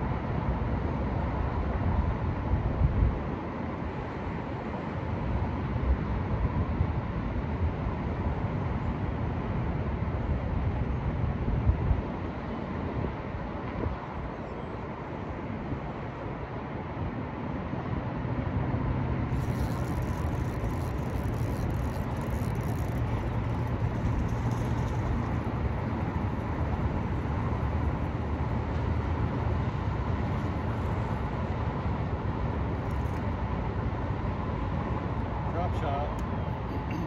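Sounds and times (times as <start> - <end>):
electric trolling motor humming: 19.3 - 26.7.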